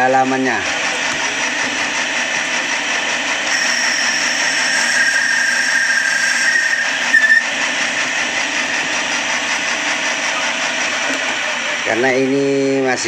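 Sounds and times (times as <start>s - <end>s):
lathe running with high whine: 0.0s - 13.0s
sharp squeal: 3.5s - 8.0s.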